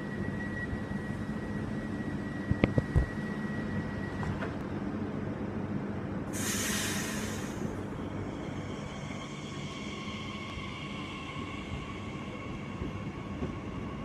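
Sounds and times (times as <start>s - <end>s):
electric train hum: 0.0s - 14.0s
compressed air hiss: 6.4s - 7.6s.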